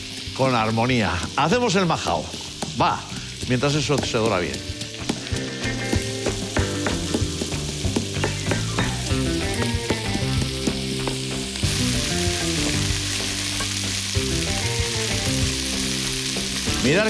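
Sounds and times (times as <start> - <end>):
meat frying in oil: 0.0 - 17.0
pestle grinding in stone mortar: 2.3 - 11.8.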